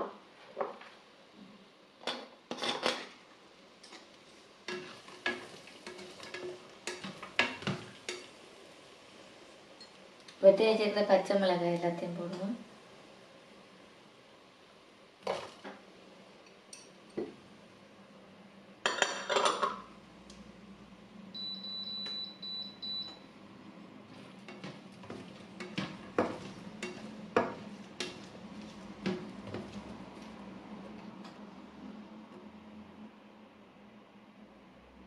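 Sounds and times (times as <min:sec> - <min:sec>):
spatula scraping pan: 0:04.7 - 0:08.3, 0:24.1 - 0:30.3
chillies clattering into frying pan: 0:24.4 - 0:28.3.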